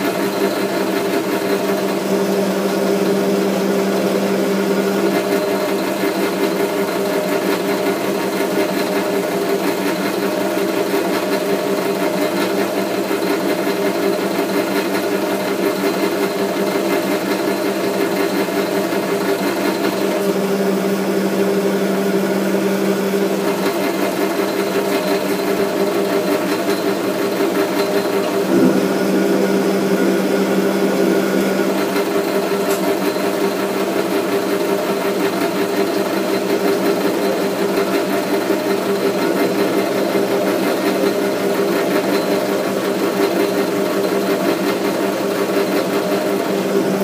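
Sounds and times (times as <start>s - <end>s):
metal lathe humming: 17.4s - 42.1s, 46.2s - 47.0s.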